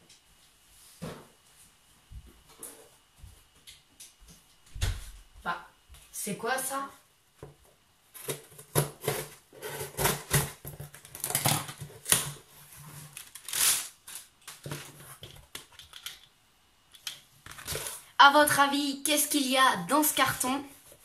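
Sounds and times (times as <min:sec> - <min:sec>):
scissors cutting packing tape: 0:08.2 - 0:12.4, 0:13.1 - 0:14.3.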